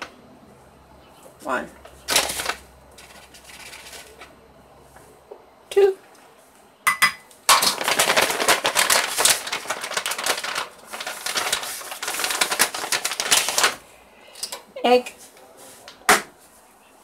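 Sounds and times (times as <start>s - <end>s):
flour pouch crinkling: 2.0s - 4.2s, 7.5s - 13.9s.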